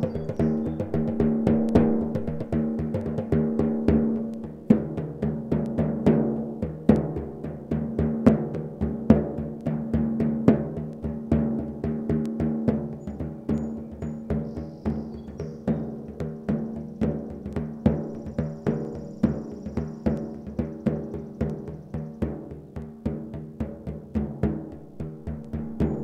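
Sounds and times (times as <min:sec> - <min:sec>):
frame drums played by hand: 0:00.0 - 0:26.0.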